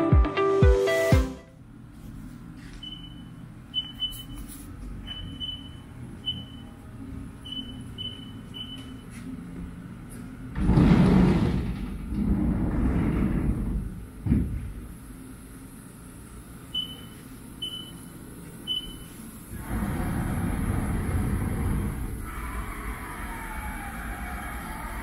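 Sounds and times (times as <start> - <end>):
keypad beeps: 2.8 - 4.4, 7.5 - 9.0, 16.8 - 18.0
sliding doors rolling open: 10.5 - 14.9, 19.5 - 25.0.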